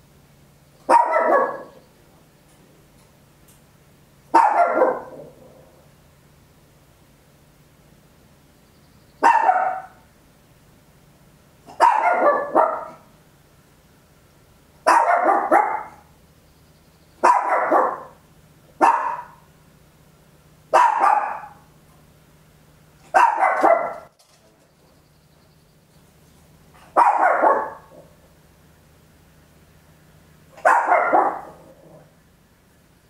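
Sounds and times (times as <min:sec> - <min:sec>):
small dog barking: 0:00.8 - 0:01.8, 0:04.3 - 0:05.4, 0:09.2 - 0:10.1, 0:11.7 - 0:13.1, 0:14.8 - 0:16.1, 0:17.2 - 0:18.2, 0:18.8 - 0:19.5, 0:20.7 - 0:21.7, 0:23.1 - 0:24.1, 0:26.8 - 0:28.2, 0:30.6 - 0:32.1.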